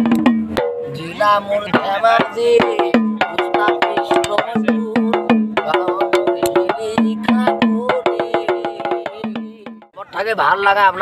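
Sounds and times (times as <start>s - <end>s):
man singing: 0.9s - 10.0s
stick tapping on bamboo basket: 2.9s - 4.6s.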